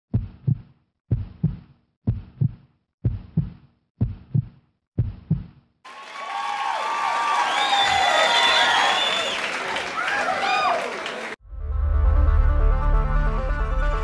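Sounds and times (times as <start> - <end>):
heartbeat thumps: 0.1 - 5.6.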